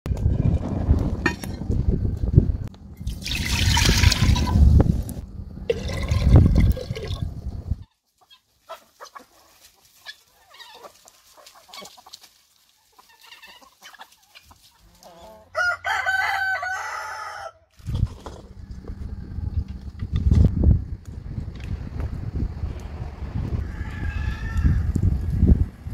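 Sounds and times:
chickens clucking: 0:07.5 - 0:15.5
chickens scratching: 0:07.8 - 0:16.0, 0:17.8 - 0:20.6, 0:23.5 - 0:25.6
rooster crowing: 0:15.1 - 0:17.7, 0:18.5 - 0:20.0, 0:23.4 - 0:25.2.

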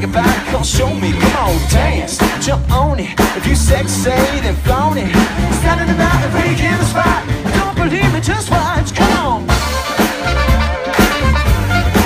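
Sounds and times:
man singing vocal ad-libs: 0:00.0 - 0:09.5
live funk-pop band: 0:00.0 - 0:12.0.

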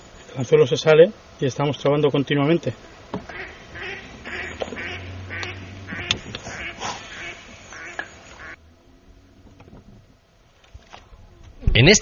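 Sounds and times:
ducks quacking: 0:03.2 - 0:08.6.

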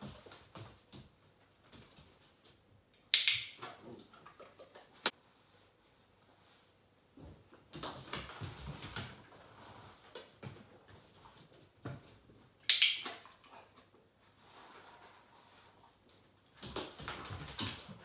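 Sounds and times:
dog paws scuffling on floor: 0:00.0 - 0:02.8, 0:03.7 - 0:18.0.

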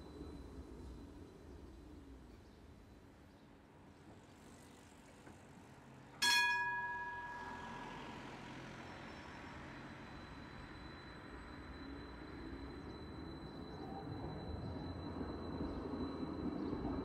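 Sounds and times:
tram hum: 0:00.0 - 0:17.0
tram bell ding: 0:06.2 - 0:17.0.

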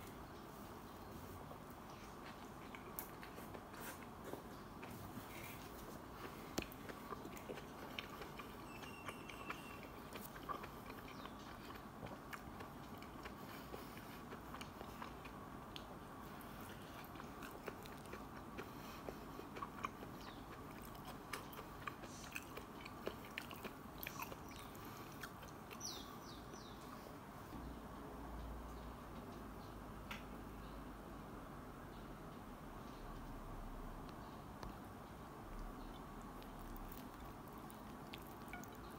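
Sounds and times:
low steady hiss: 0:00.0 - 0:38.9
person chewing food: 0:01.5 - 0:26.7, 0:35.8 - 0:38.9.

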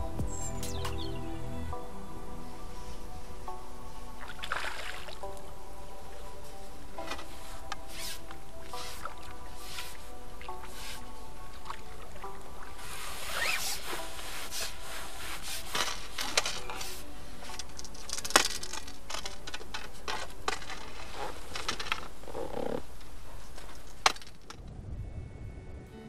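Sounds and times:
faint music: 0:00.0 - 0:26.0
landing net clicks and knocks: 0:17.5 - 0:20.9.

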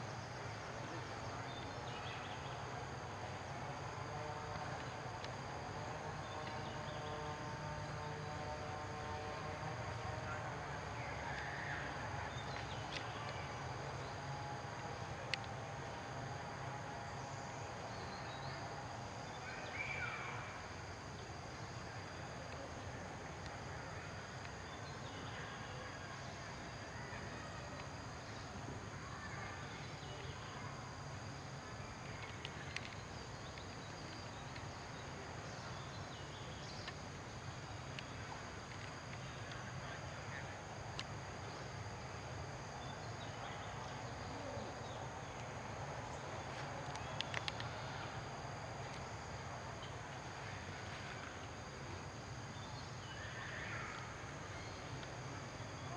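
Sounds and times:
small clicks: 0:32.2 - 0:33.7, 0:46.5 - 0:47.7.

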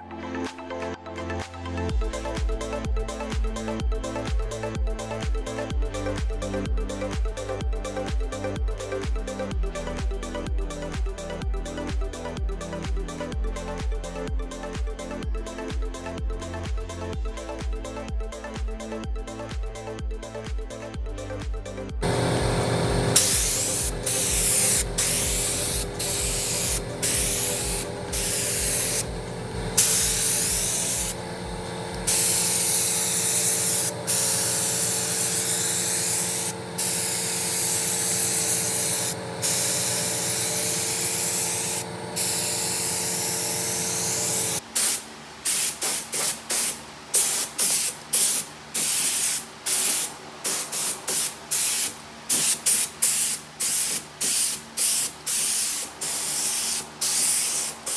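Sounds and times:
machine hum: 0:22.0 - 0:44.6
paint spray gun hissing: 0:22.0 - 0:57.9.

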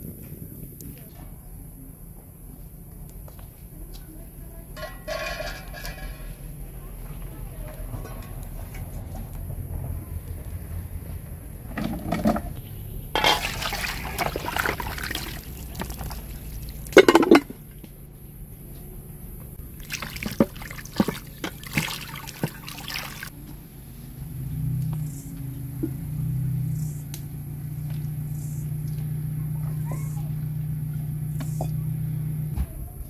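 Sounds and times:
water splashing in metal bowl: 0:13.2 - 0:17.6, 0:19.7 - 0:23.4.

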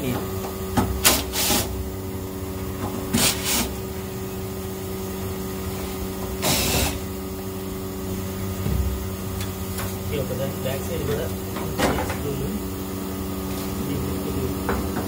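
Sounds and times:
air conditioner unit humming: 0:00.0 - 0:15.0
cordless drill whirring: 0:06.4 - 0:07.0.

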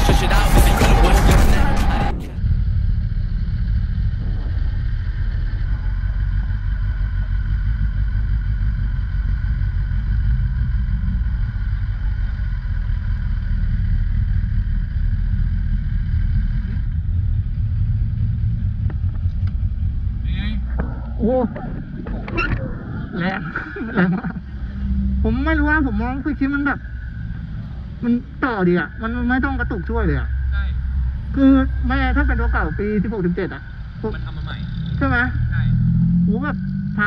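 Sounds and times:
motorcycle engine running: 0:02.3 - 0:22.4
wind rumble on microphone: 0:02.4 - 0:25.4.

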